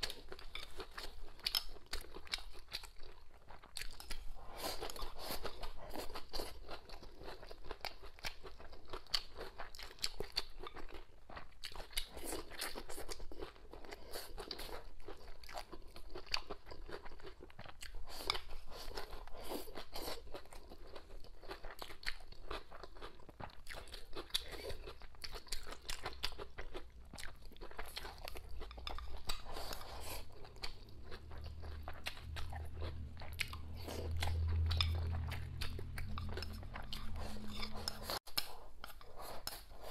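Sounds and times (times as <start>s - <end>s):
person chewing and crunching food: 0.0s - 39.9s
low hum: 30.5s - 38.2s.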